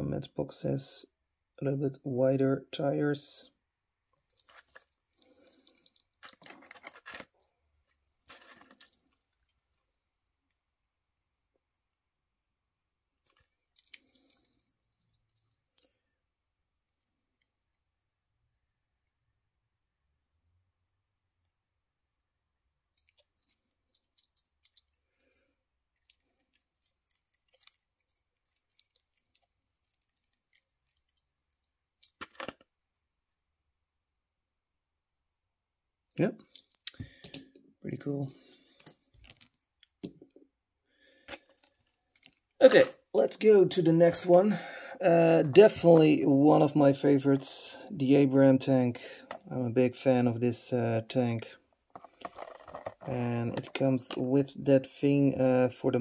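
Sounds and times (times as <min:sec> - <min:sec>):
fingers handling toy cars: 0:04.1 - 0:07.4, 0:51.9 - 0:53.8.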